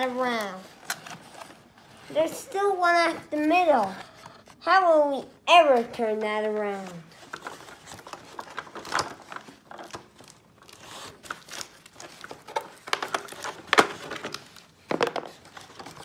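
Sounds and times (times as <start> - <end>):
plastic packaging crinkling: 6.7 - 16.0.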